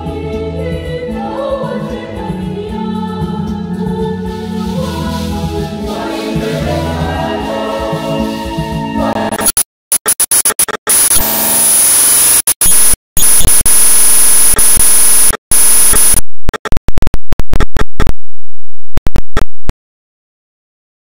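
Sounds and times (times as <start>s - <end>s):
loud harsh static: 9.3s - 19.7s.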